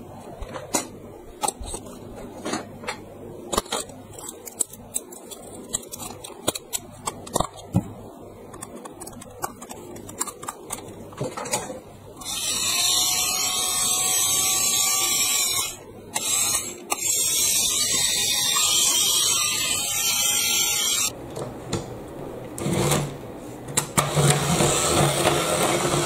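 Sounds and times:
toy motor and gears whirring: 0:12.2 - 0:21.2.

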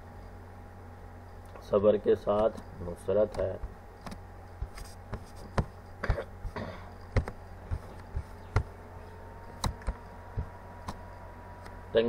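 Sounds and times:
low electrical hum: 0:00.0 - 0:12.0
sharp clicks: 0:09.5 - 0:11.0.

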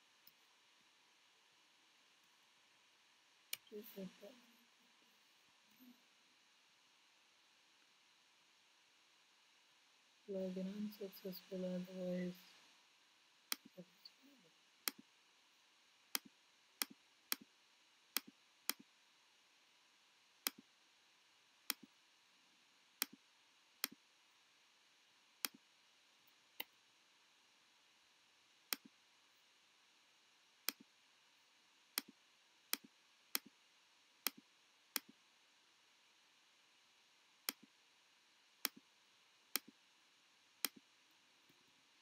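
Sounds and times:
mouse clicks: 0:16.1 - 0:17.5, 0:18.2 - 0:18.8, 0:20.4 - 0:20.6, 0:21.7 - 0:21.9, 0:28.7 - 0:28.9, 0:30.6 - 0:30.9, 0:32.0 - 0:33.5, 0:34.2 - 0:34.4, 0:35.0 - 0:35.2, 0:37.4 - 0:37.7, 0:39.5 - 0:39.7, 0:40.6 - 0:40.8.

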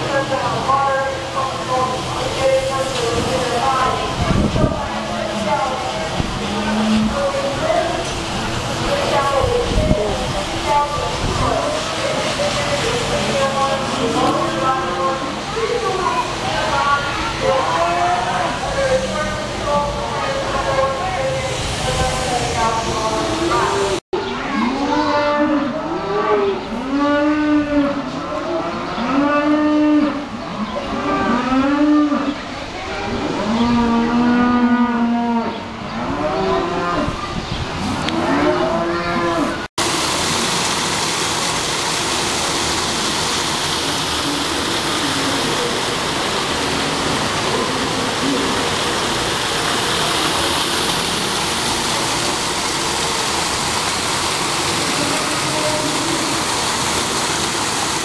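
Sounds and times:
water pouring down waterfall: 0:00.0 - 0:24.0, 0:39.6 - 0:58.0.

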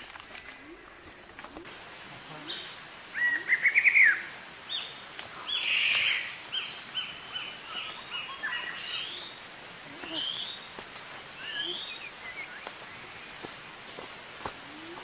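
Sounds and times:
birds chirping: 0:02.2 - 0:15.0.

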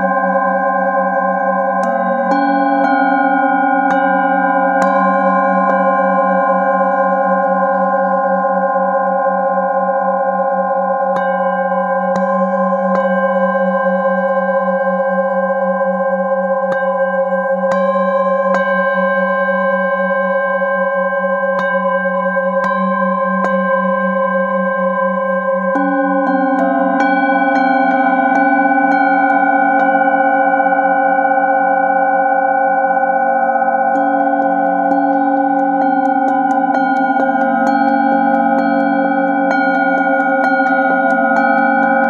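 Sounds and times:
singing bowls droning: 0:00.0 - 0:42.0.

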